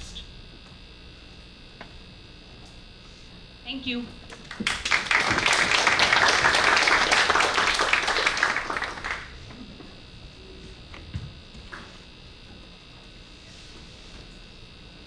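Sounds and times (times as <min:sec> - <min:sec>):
audience applauding: 0:04.4 - 0:09.4.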